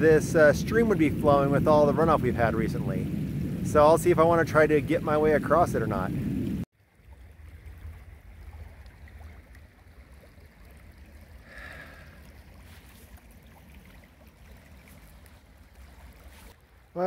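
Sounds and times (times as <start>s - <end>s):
creek flowing: 6.8s - 17.0s.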